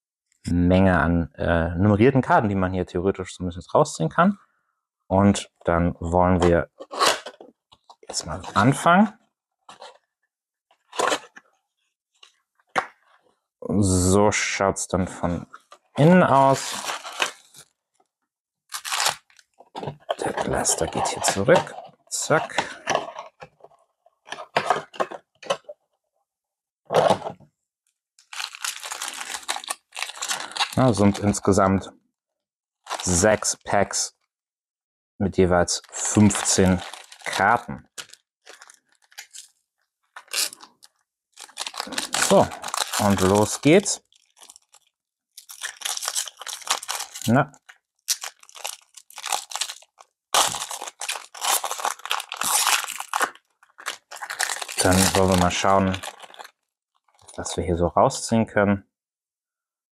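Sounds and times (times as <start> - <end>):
foil wrappers crinkling: 16.4 - 17.7, 18.7 - 23.4, 28.2 - 31.4, 32.9 - 33.4, 35.9 - 57.3.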